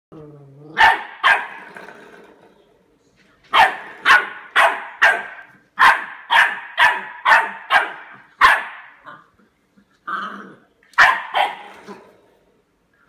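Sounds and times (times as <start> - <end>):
puppy barking: 0.8 - 1.6, 3.5 - 9.2, 11.0 - 12.0.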